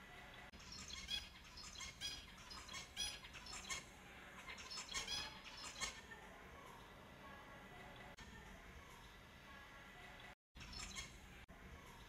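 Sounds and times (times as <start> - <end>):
finches chirping: 0.6 - 6.0, 10.6 - 11.2.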